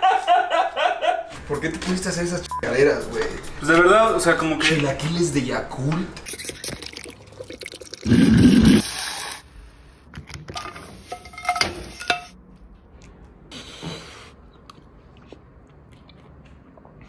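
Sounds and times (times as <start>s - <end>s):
metal spoon clinking on pot: 10.6s - 12.4s.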